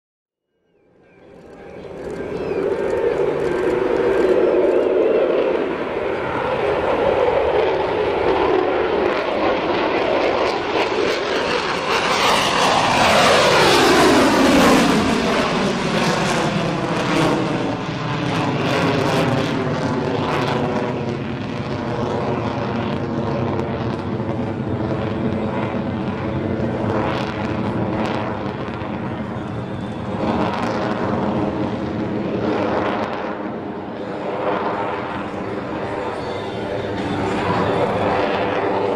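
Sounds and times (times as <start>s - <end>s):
jet engine rumble with whine: 0.6s - 38.9s
fighter jet taking off: 1.2s - 38.9s.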